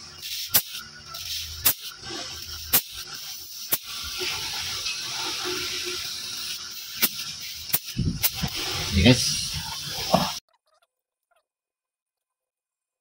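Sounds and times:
gas hissing from tubing: 0:00.0 - 0:10.4.

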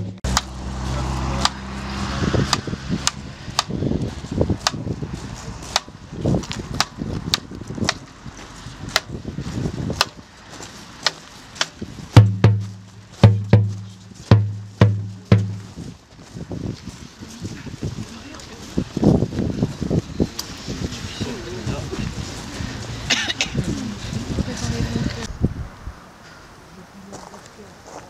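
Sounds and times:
bass drum beats: 0:12.1 - 0:15.9.

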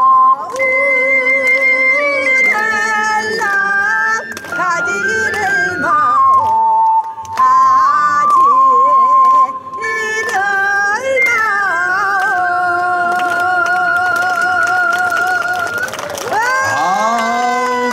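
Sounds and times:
ocarina melody: 0:00.0 - 0:12.1.

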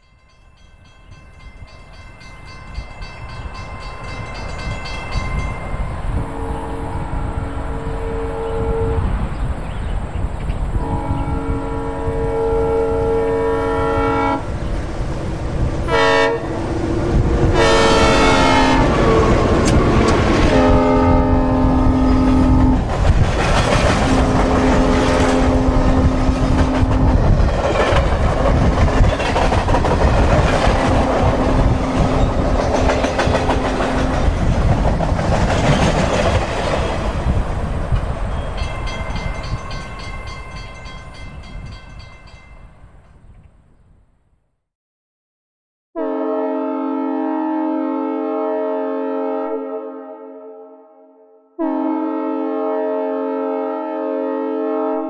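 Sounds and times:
passing train rumble: 0:00.1 - 0:43.2
locomotive horn blasts: 0:06.1 - 0:09.2, 0:10.8 - 0:14.6, 0:15.8 - 0:16.8, 0:17.5 - 0:22.9, 0:24.0 - 0:27.2, 0:30.9 - 0:32.8, 0:46.0 - 0:55.0.

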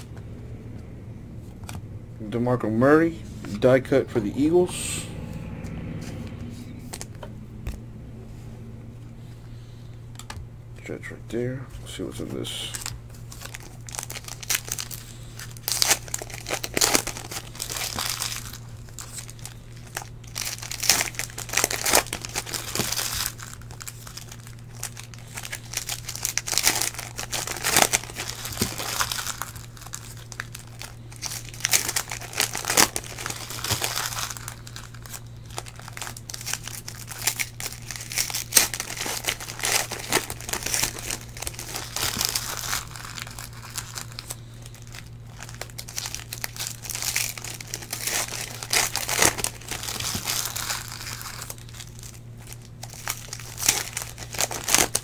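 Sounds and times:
steady low hum: 0:00.0 - 0:55.0
card wrappers torn and crumpled: 0:12.2 - 0:55.0.

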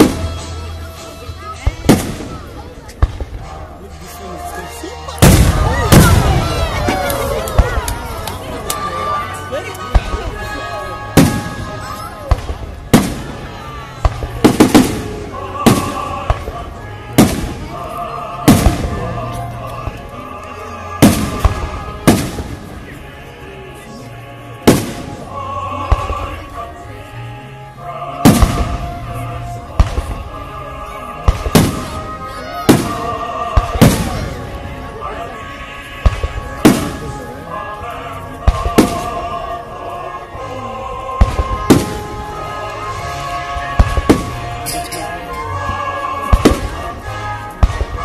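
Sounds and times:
background music with held tones: 0:03.0 - 0:48.0
fireworks booming: 0:05.2 - 0:08.4, 0:11.1 - 0:20.0, 0:21.0 - 0:22.9, 0:24.7 - 0:25.3, 0:28.2 - 0:29.1, 0:31.2 - 0:34.6, 0:36.0 - 0:37.3, 0:38.4 - 0:39.5, 0:41.2 - 0:44.9, 0:45.7 - 0:48.0.

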